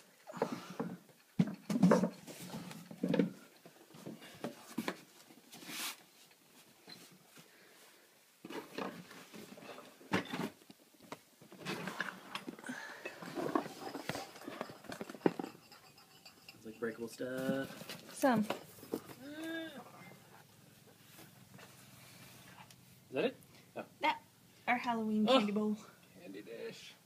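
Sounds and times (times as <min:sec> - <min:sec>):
boxes knocking and bumping: 0:00.4 - 0:05.1.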